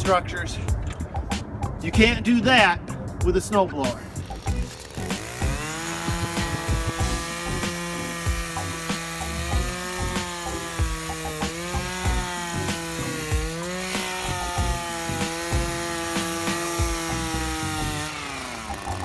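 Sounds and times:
two-stroke power broom running: 3.9s - 19.0s
low thumps: 4.2s - 8.8s.

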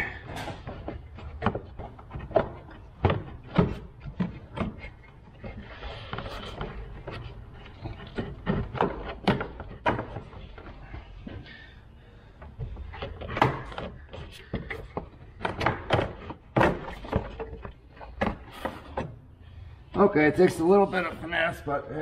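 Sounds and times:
plastic knocks and clatters: 0.0s - 11.6s, 12.4s - 19.2s
plastic scraping rub: 0.2s - 11.6s.

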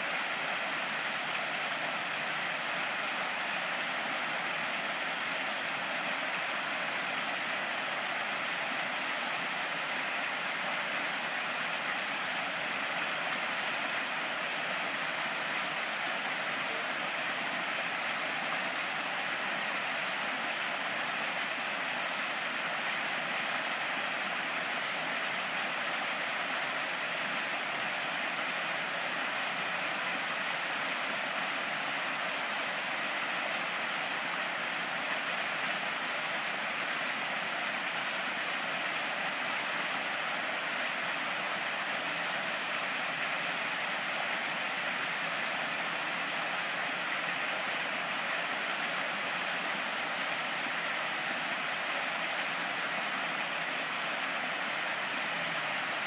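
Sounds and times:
waterfall splashing into pool: 0.0s - 56.0s.

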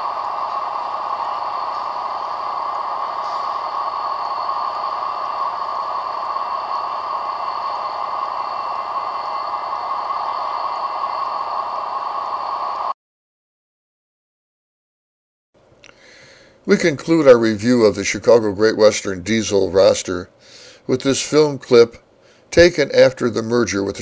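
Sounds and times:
diesel locomotive rolling past: 0.0s - 13.0s.

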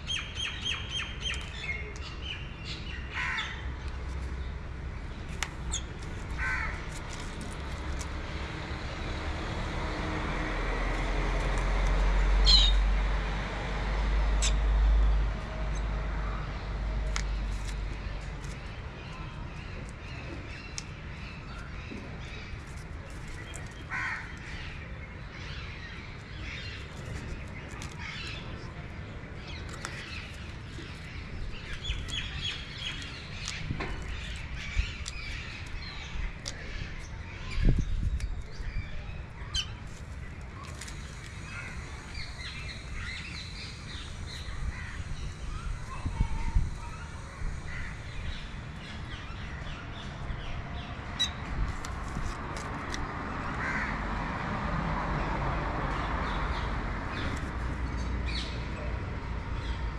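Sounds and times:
birds chirping: 0.0s - 8.5s, 12.4s - 12.9s, 17.2s - 52.0s
crow-like caws: 6.4s - 6.8s, 53.6s - 54.0s.

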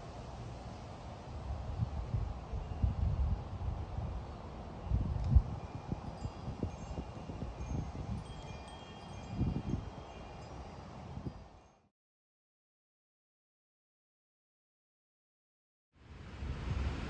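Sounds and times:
wind buffeting microphone: 1.4s - 11.6s
wind chime ringing: 4.8s - 11.9s.

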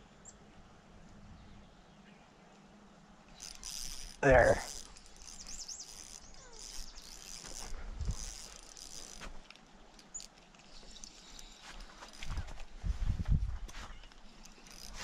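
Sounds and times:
fishing reel whirring and clicking: 3.3s - 12.7s, 14.1s - 15.0s.

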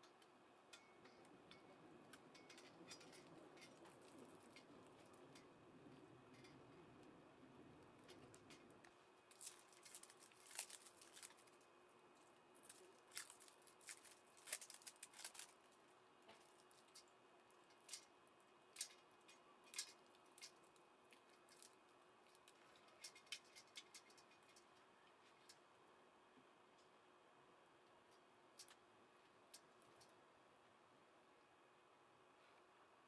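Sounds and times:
plastic cable connectors clicking: 12.6s - 15.6s.

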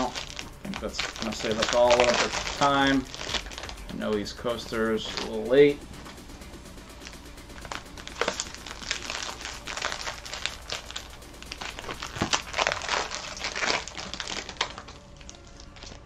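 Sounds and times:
cellophane wrappers crinkling and ripping: 0.0s - 5.5s, 7.0s - 16.0s.

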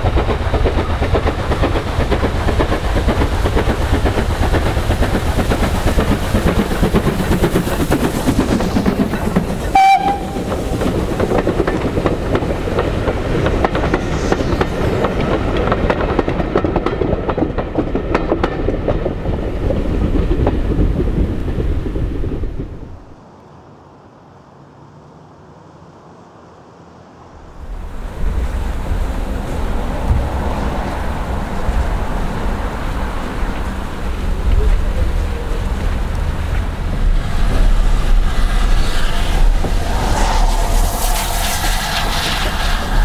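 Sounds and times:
steam locomotive exhaust beats: 0.0s - 23.2s, 27.4s - 43.0s
wheels clattering over rail joints: 0.0s - 23.2s.

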